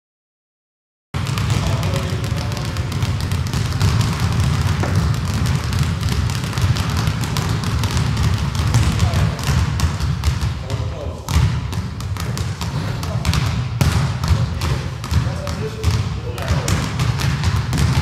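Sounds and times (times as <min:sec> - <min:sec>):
basketballs bouncing on wooden floor: 0:01.2 - 0:18.0.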